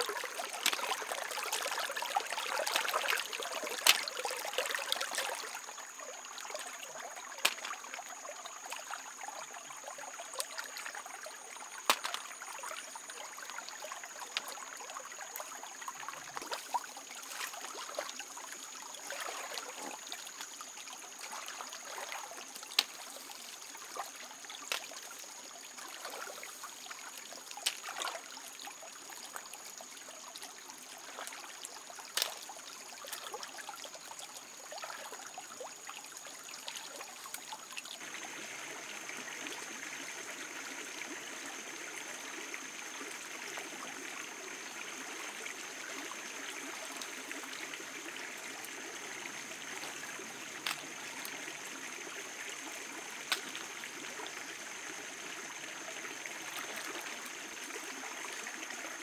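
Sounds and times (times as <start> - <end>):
hands splashing in water: 0.0 - 5.6, 6.4 - 7.9, 11.8 - 12.8, 21.2 - 25.1, 27.5 - 28.2, 32.1 - 32.5
stream trickling over stones: 0.0 - 59.0.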